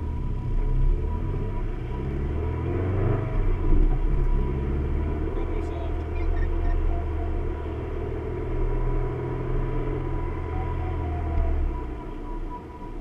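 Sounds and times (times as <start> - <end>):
car engine and road noise: 0.0 - 13.0.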